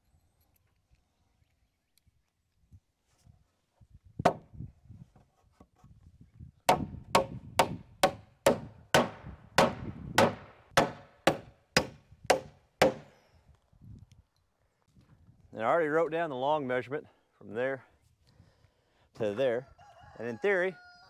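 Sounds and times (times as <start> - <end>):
hammer driving nail into wood: 6.7 - 13.1.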